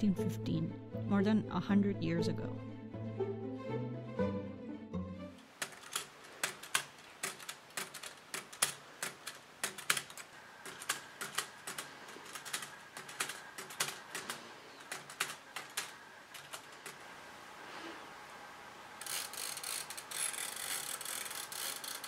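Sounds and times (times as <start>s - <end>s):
manual typewriter keys clacking: 5.6s - 17.0s, 19.0s - 22.0s.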